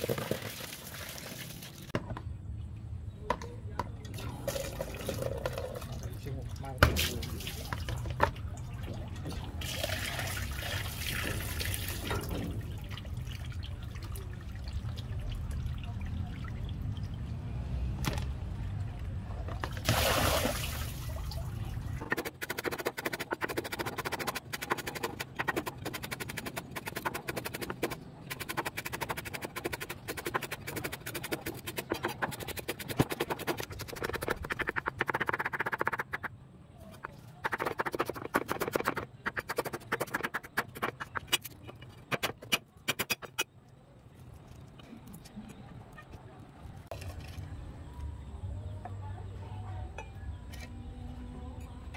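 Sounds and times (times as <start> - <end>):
water sloshing in a basin: 4.1 - 22.1
water pouring splash: 19.8 - 21.5.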